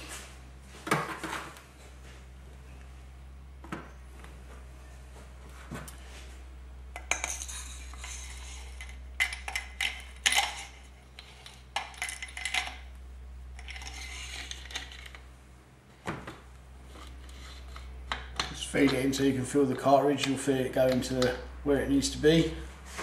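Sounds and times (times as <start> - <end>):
metal clinking and scraping: 7.0 - 15.3, 16.8 - 19.3.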